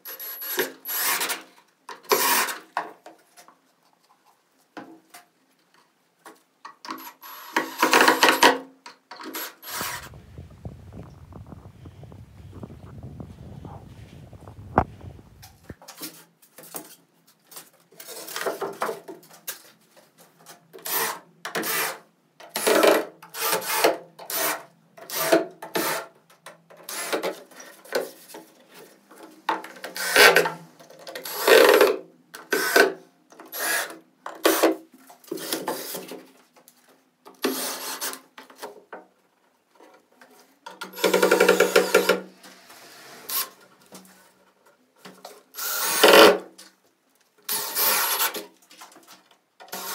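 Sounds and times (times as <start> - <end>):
hand sanding wood: 9.6 - 10.2.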